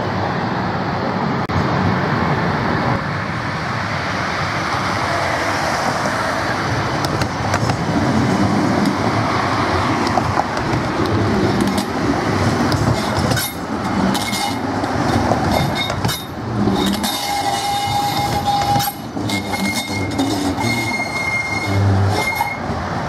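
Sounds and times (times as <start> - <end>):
tram wheels rumbling on rails: 0.0 - 23.0.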